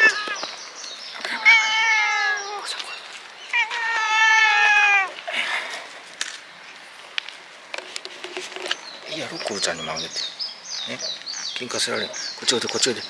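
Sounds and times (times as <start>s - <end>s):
cat meowing: 0.0s - 0.5s, 1.3s - 2.7s, 3.5s - 5.2s.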